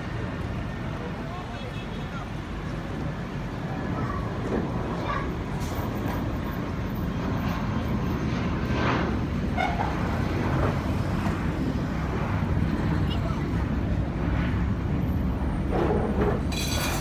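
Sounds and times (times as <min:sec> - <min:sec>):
jet airliner passing overhead: 0:00.0 - 0:17.0.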